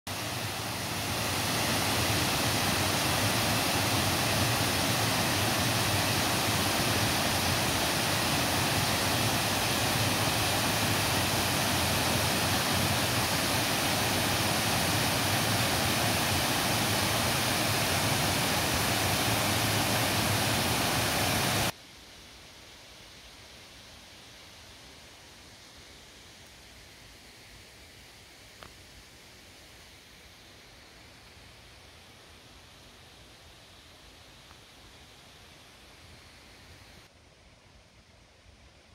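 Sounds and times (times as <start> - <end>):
waterfall roaring: 0.1 - 21.7.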